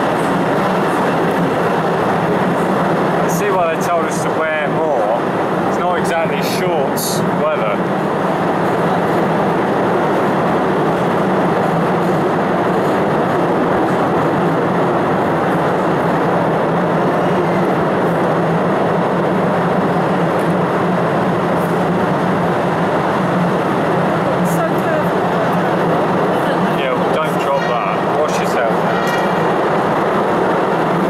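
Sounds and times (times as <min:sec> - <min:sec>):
train wheels rumbling on track: 0:00.0 - 0:31.0.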